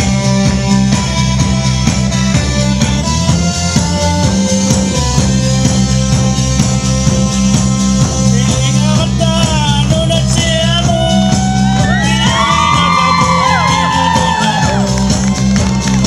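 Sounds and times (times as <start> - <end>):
live band music: 0.0 - 16.0
man singing into microphone: 8.3 - 13.4
shouts and whoops: 11.3 - 16.0.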